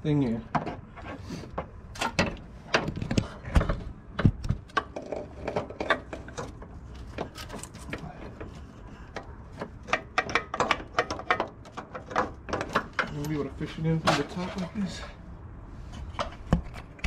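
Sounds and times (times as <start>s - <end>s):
metal oil lines clicking and scraping: 4.7s - 15.1s.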